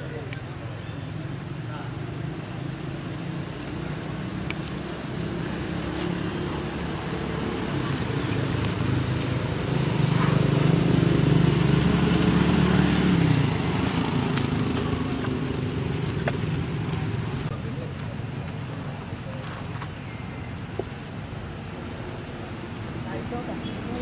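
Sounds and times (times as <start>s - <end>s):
vehicle engine passing by: 2.4s - 17.6s.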